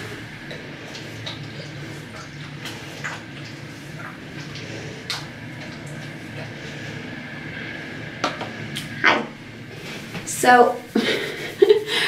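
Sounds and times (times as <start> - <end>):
steady low hum: 0.0 - 12.0
bottle rustling in hair: 9.7 - 12.0.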